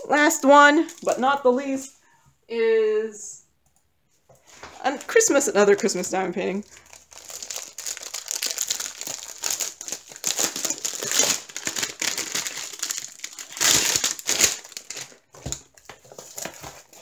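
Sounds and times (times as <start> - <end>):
plastic bag crinkling: 5.1 - 17.0.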